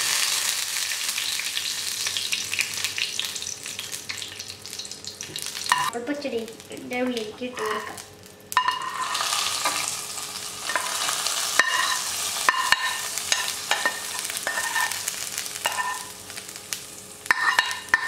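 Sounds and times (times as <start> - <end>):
hot oil sizzling: 0.0 - 18.0
steel spoon scraping and clinking: 8.6 - 9.8, 10.7 - 15.0, 15.6 - 16.1, 17.3 - 18.0.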